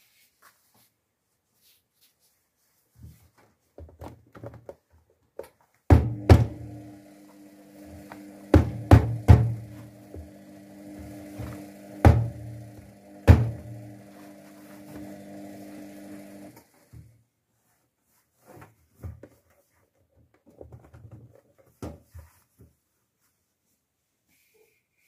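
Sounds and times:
washing machine motor humming: 0:05.9 - 0:17.0
heavy thumps: 0:08.1 - 0:10.4, 0:11.4 - 0:12.6, 0:13.2 - 0:14.0.

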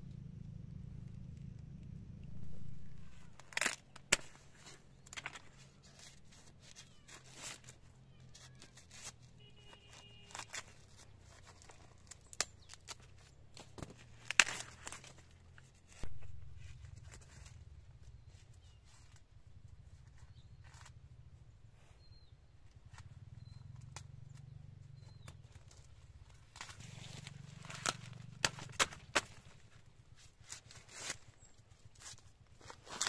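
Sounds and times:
crackling snaps of corn stalks: 0:01.0 - 0:17.6, 0:25.0 - 0:33.0
corn husks rustling and tearing: 0:01.1 - 0:19.2, 0:25.0 - 0:33.0.

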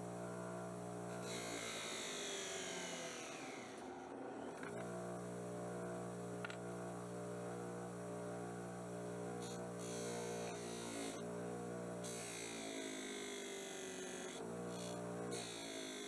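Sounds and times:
bench grinder motor humming: 0:00.0 - 0:16.0
blade hissing on grinding wheel: 0:01.1 - 0:04.0, 0:09.4 - 0:11.2, 0:12.0 - 0:16.0.

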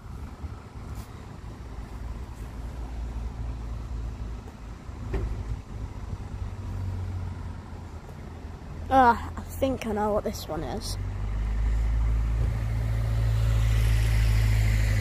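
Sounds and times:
vehicle engine rumble: 0:00.0 - 0:15.0.

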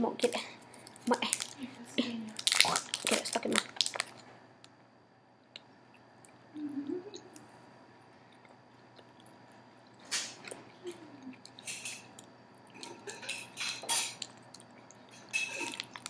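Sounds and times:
person chewing candy: 0:02.4 - 0:04.3, 0:08.3 - 0:13.3, 0:13.9 - 0:16.0.

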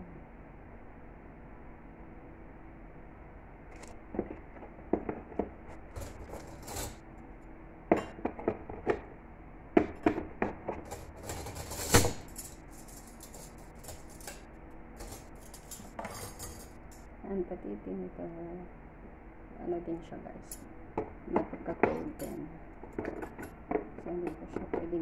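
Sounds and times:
metal cutlery clinking: 0:10.8 - 0:17.0.

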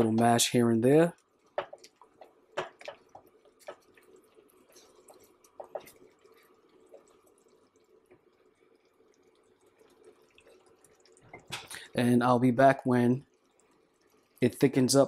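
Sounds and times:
fruit simmering in a pan: 0:00.0 - 0:15.0
soft pops and taps: 0:01.4 - 0:04.1, 0:04.7 - 0:07.4
spatula stirring and mashing: 0:01.5 - 0:08.2.

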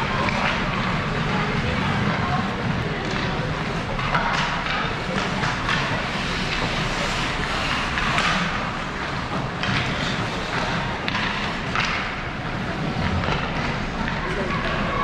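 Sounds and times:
skates scraping ice: 0:00.0 - 0:15.0
steady rink noise: 0:00.0 - 0:15.0
sticks and puck knocking: 0:04.0 - 0:06.8, 0:07.8 - 0:12.4.

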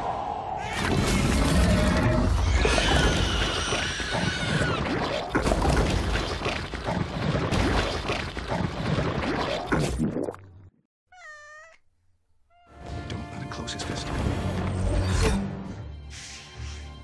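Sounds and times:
alien creature shrieking: 0:00.6 - 0:05.3
music: 0:12.5 - 0:17.0.

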